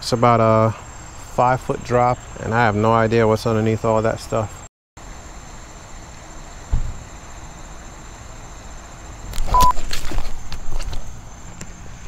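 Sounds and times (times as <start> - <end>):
high insect drone: 0.0 - 12.0
short beep: 9.5 - 9.8.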